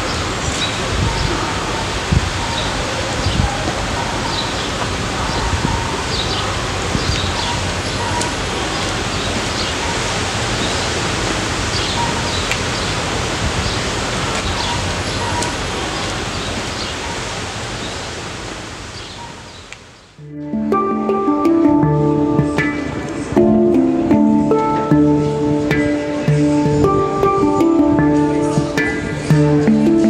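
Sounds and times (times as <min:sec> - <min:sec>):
small birds chirping: 0:00.0 - 0:11.0, 0:11.7 - 0:18.2
background hiss: 0:00.0 - 0:30.0.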